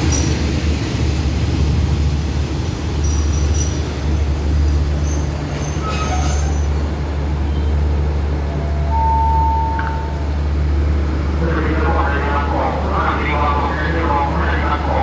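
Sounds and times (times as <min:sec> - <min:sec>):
train rumbling: 0:00.0 - 0:15.0
steady high tone: 0:08.5 - 0:10.4.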